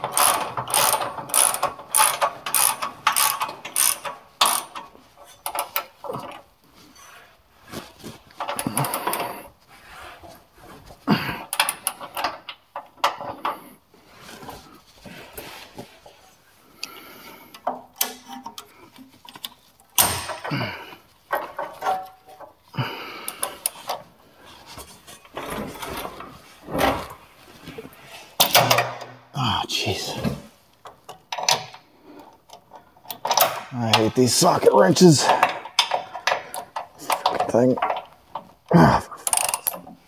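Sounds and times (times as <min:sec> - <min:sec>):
tools and metal parts clanking: 0:00.0 - 0:09.6, 0:10.2 - 0:13.7, 0:17.5 - 0:29.3, 0:30.2 - 0:31.8, 0:32.4 - 0:40.0
socket ratchet wrench clicking: 0:00.1 - 0:04.8.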